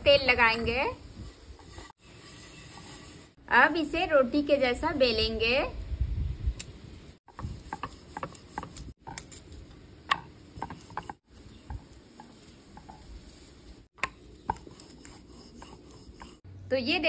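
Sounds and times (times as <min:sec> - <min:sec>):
rolling pin rolling dough: 0:07.3 - 0:08.9, 0:10.6 - 0:13.1, 0:14.0 - 0:16.4
wood knocking on wood: 0:10.1 - 0:13.0.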